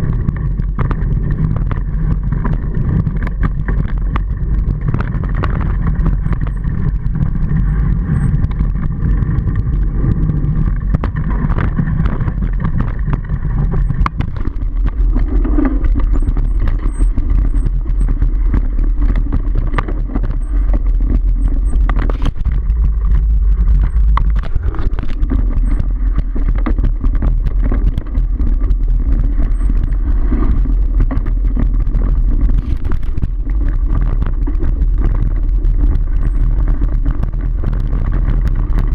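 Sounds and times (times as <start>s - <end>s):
bike rattling and knocking: 0.0s - 38.9s
wind buffeting microphone: 0.0s - 38.9s.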